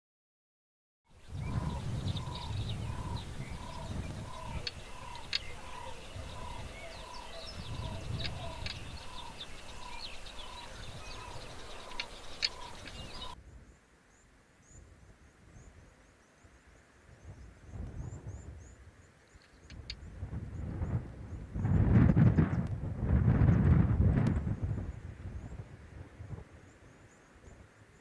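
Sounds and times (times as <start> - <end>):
wind rumbling on microphone: 1.1 - 13.8, 14.6 - 28.0
birds chirping: 1.2 - 13.4.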